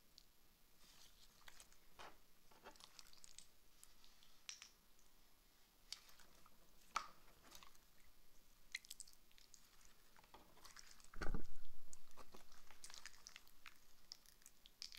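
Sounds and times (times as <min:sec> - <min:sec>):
slime squelching by hand: 0:02.6 - 0:04.5, 0:05.8 - 0:08.1, 0:08.7 - 0:14.9.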